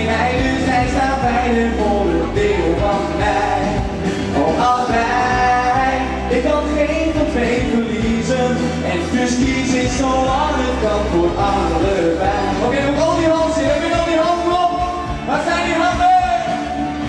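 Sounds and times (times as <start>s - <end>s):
man singing into microphone: 0.0s - 16.8s
instrumental backing: 0.0s - 17.0s.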